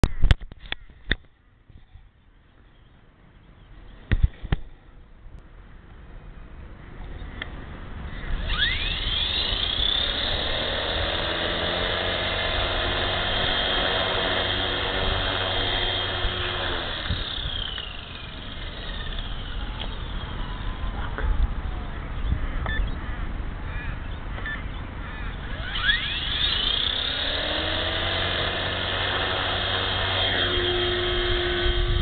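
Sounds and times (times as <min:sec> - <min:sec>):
rc helicopter motor whine: 0:08.2 - 0:21.8, 0:25.4 - 0:32.0
sharp clicks: 0:16.0 - 0:20.1.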